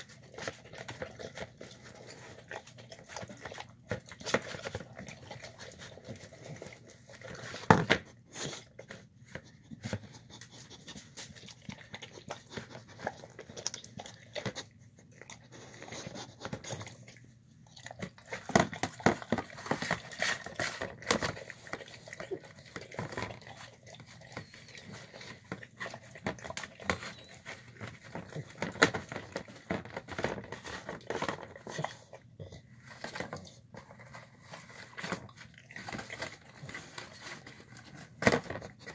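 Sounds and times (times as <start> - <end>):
dog chewing and licking: 0.0 - 38.9.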